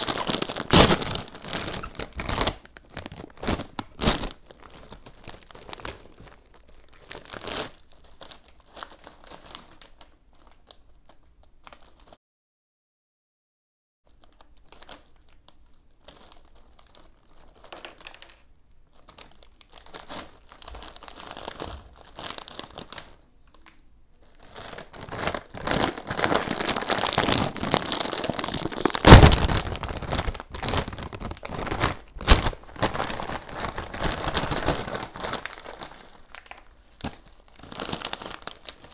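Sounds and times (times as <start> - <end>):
bag tearing open: 0.0 - 7.9, 24.4 - 38.9
plastic chip bags crinkling: 0.0 - 12.2, 14.1 - 38.9.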